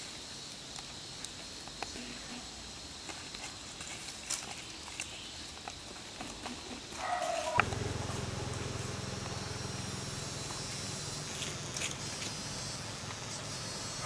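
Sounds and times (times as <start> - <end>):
dry leaves rustling: 0.1 - 14.0
steady low hum: 6.5 - 14.0.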